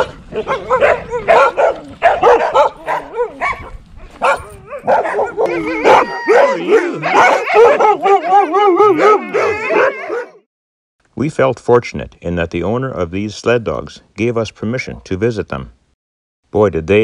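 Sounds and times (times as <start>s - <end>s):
dogs barking: 0.0s - 10.4s
dogs whining howls: 0.4s - 10.4s.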